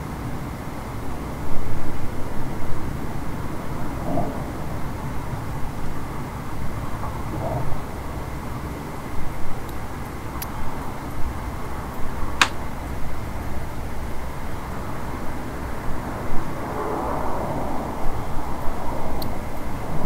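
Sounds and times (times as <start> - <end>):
rumble of distant vehicles: 0.0 - 20.0
sharp click: 12.4 - 12.6.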